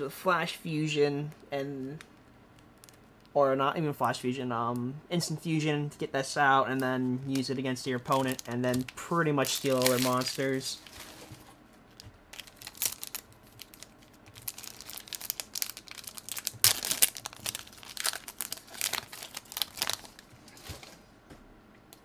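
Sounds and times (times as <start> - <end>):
foil wrapper crinkling and tearing: 6.8 - 11.3, 11.9 - 20.3.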